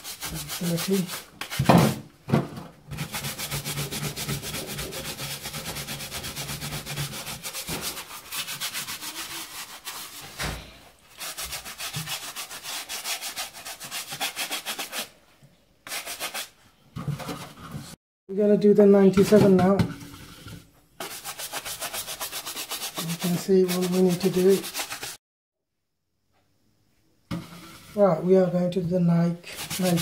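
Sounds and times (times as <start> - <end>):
brush scrubbing shoe: 0.0 - 1.6, 3.0 - 10.3, 11.1 - 15.1, 21.0 - 25.2, 29.5 - 30.0.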